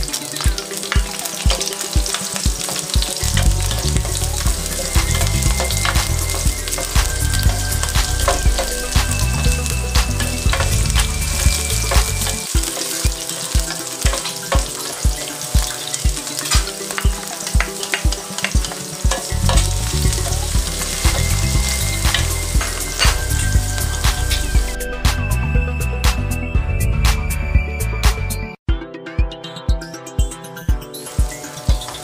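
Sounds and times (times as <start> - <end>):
onion sizzling in oil: 0.0 - 24.8, 31.0 - 32.0
spoon stirring and clicking on pan: 0.2 - 9.1, 10.1 - 23.5.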